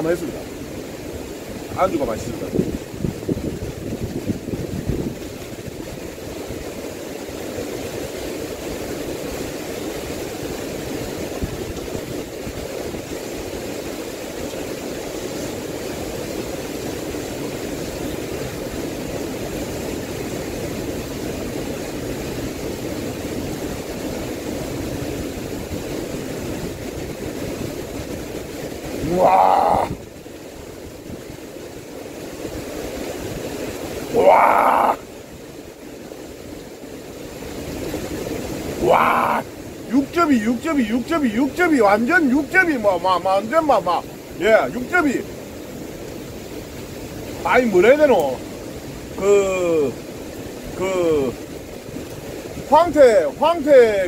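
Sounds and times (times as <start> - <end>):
wind and rain on microphone: 0.0 - 54.0
man's short exclamation: 29.0 - 30.0, 38.8 - 39.4.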